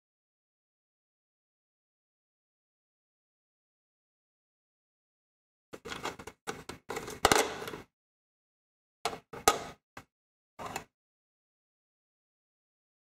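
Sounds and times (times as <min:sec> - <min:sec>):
plastic lantern handling clatter: 0:05.8 - 0:07.8.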